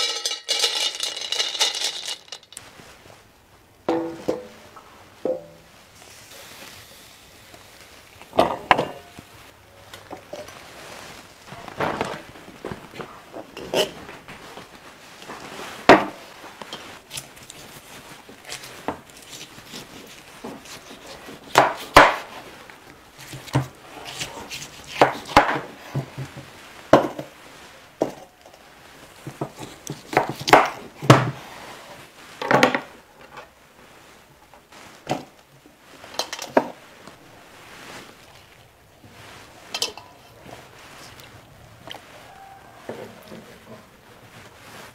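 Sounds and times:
metal dishes clinking: 0.0 - 2.6, 39.7 - 40.2.

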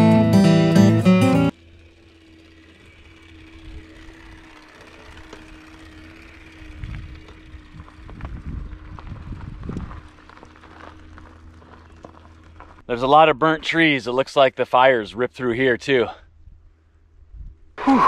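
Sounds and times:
acoustic guitar music: 0.0 - 1.5
tyres rolling on dirt: 1.7 - 15.0.

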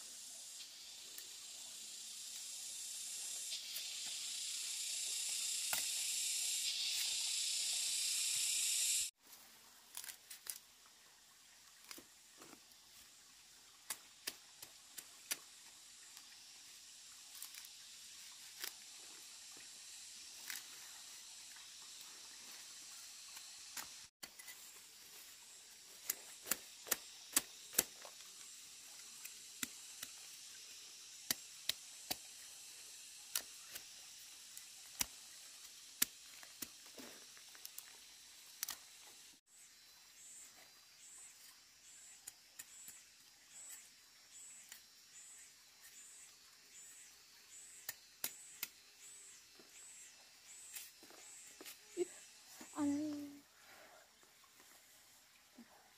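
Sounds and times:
high steady hiss: 0.0 - 10.6, 11.8 - 55.9
machete tapping and scraping roots: 25.9 - 28.4.

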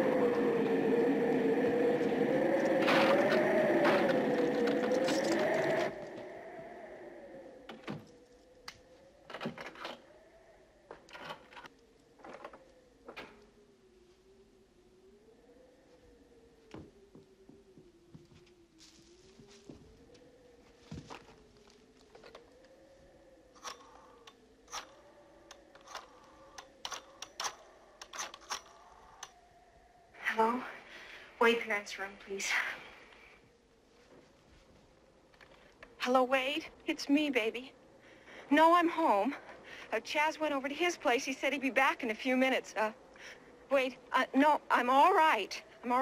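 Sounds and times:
faint wind howling: 0.0 - 46.0
door lock clicks and rattles: 23.6 - 29.4.

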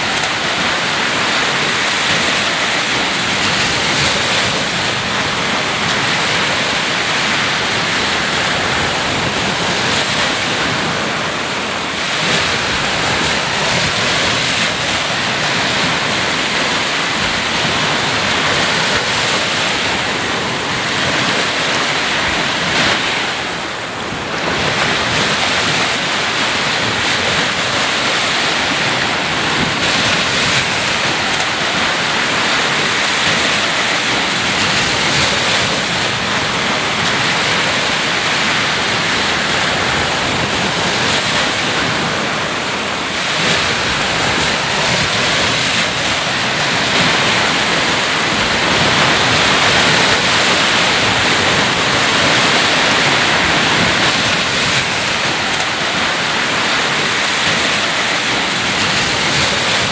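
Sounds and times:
ocean surf on beach: 0.0 - 59.9.

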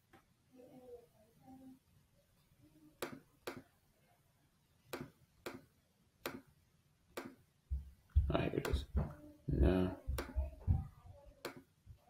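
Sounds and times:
computer mouse clicking: 11.4 - 11.6.

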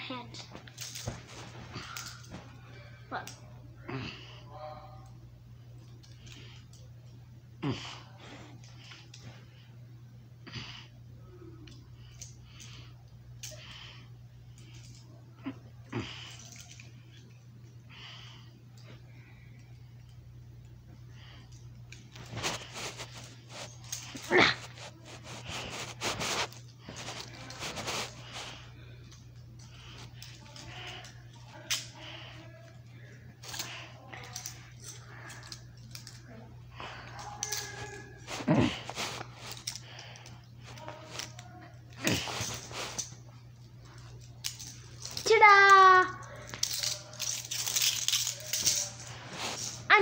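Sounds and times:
steady low hum: 0.0 - 50.0
boy huffing heavily: 37.0 - 39.0.

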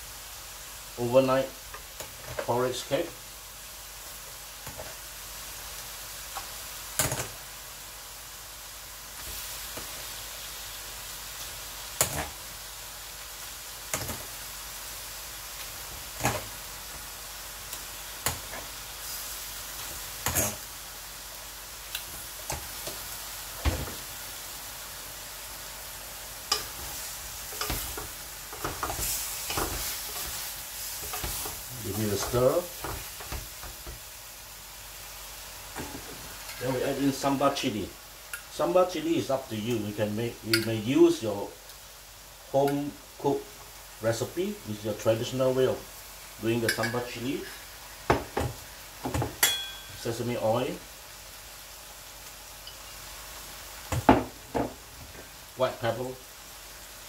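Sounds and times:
oil sizzling in a wok: 0.0 - 57.0
wooden spatula stirring wok: 26.5 - 34.1.

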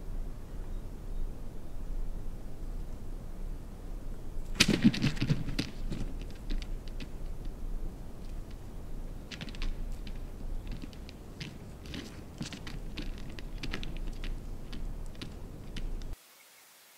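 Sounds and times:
turkey wing beats: 0.0 - 16.2
turkey tapping on decoy: 4.6 - 7.6, 8.2 - 16.2.

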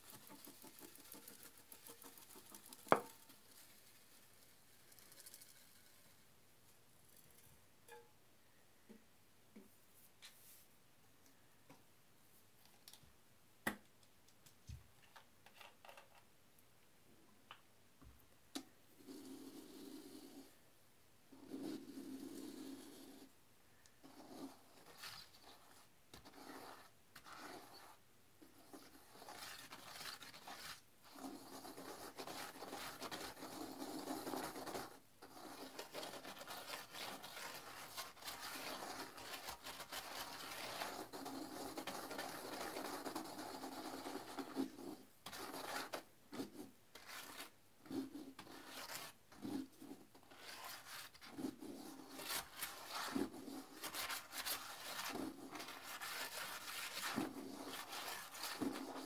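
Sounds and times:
toilet brush scrubbing bowl: 24.0 - 59.0.

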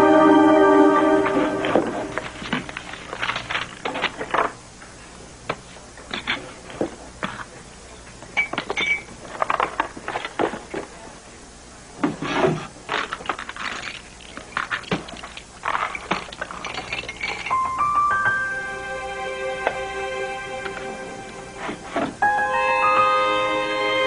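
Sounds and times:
papers and desk items handled: 1.6 - 4.6.

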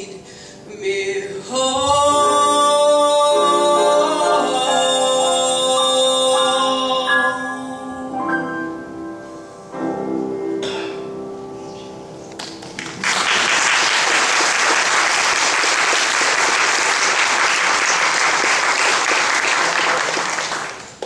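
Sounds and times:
piano chord: 1.5 - 13.1
audience applauding: 12.4 - 21.0.

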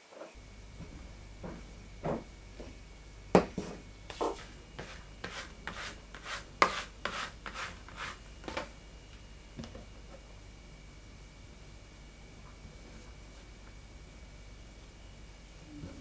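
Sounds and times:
low steady hum: 0.3 - 16.0
dough rolling strokes: 0.7 - 8.7.

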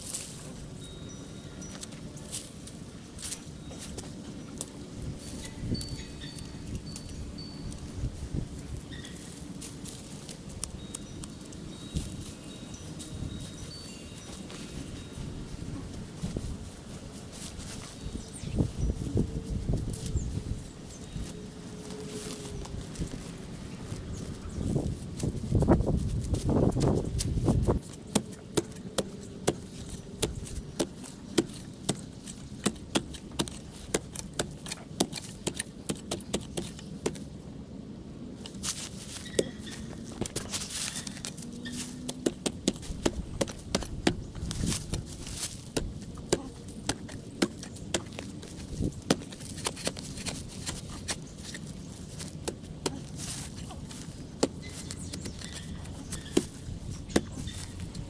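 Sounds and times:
hand tools knocking and scraping soil: 23.9 - 37.3, 38.4 - 58.0.

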